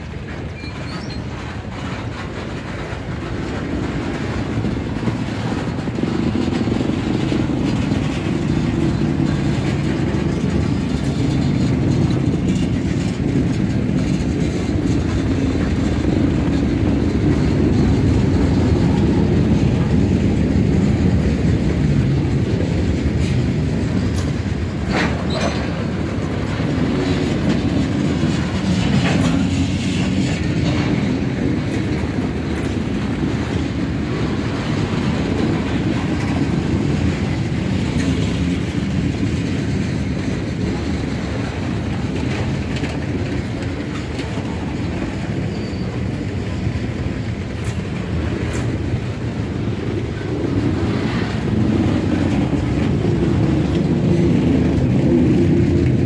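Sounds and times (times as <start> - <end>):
freight cars rumbling on rails: 0.0 - 56.0.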